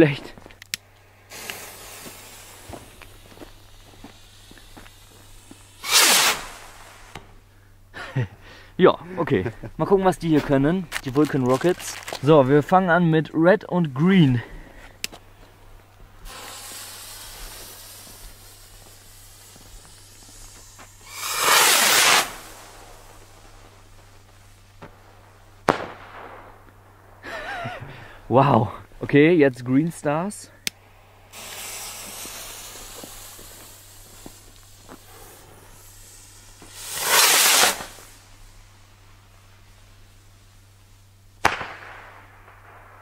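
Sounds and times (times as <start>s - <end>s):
firework fuse sizzling: 0.0s - 8.2s, 9.8s - 12.7s, 15.0s - 28.6s, 30.0s - 43.0s
faint crackles: 0.0s - 8.6s, 9.4s - 12.8s, 13.9s - 29.8s, 30.5s - 43.0s
rocket launching whoosh: 4.1s - 7.2s, 16.3s - 23.4s, 35.1s - 38.2s.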